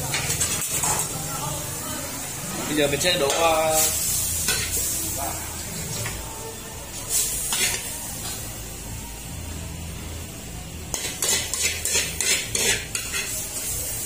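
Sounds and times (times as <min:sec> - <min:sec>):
metal ladle scraping a wok: 0:10.9 - 0:13.7.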